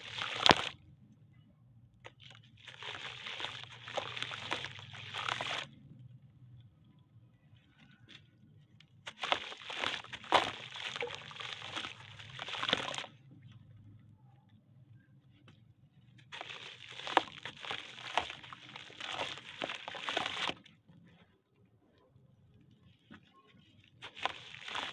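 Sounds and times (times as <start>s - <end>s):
dry soil crumbled by hand: 0.0s - 0.8s, 2.0s - 5.8s, 7.5s - 13.7s, 16.2s - 21.5s, 22.6s - 24.9s
grains falling into water: 0.0s - 0.8s, 2.2s - 5.7s, 9.1s - 13.2s, 16.3s - 20.6s, 24.0s - 24.9s.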